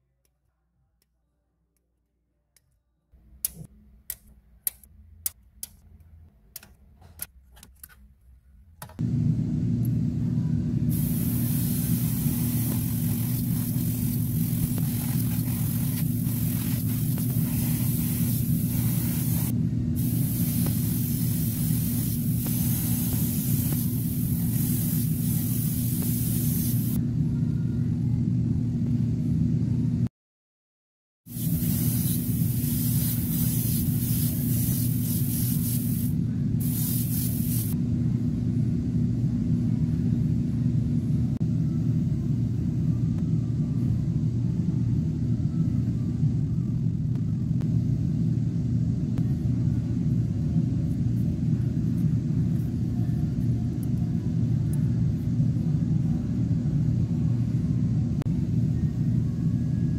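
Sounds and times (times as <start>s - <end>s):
compressor humming: 9.0s - 29.9s, 31.3s - 59.4s
airbrush spraying hiss: 10.9s - 27.0s, 31.3s - 37.8s.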